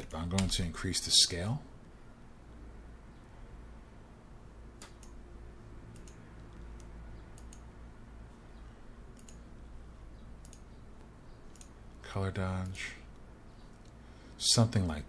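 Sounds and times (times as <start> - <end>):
faint low hum: 0.0 - 15.0
mouse and keyboard clicks: 5.9 - 7.7, 9.1 - 9.4, 11.5 - 11.8.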